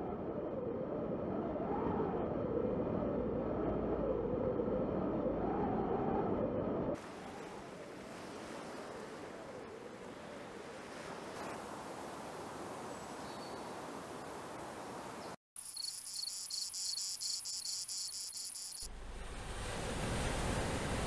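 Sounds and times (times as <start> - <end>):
insects chirping shrilly: 15.6 - 18.9.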